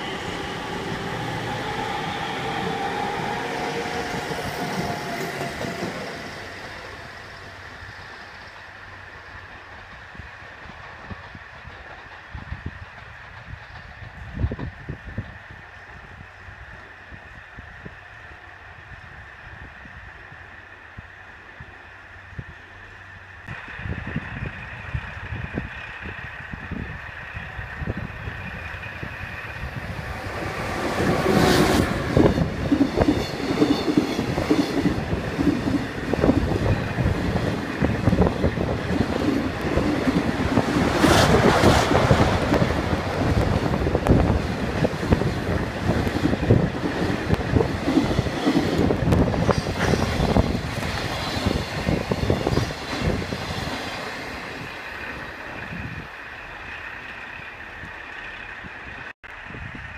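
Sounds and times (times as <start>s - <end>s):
freight train rumble: 0.0s - 59.9s
wheels clicking over rail joints: 8.5s - 15.4s.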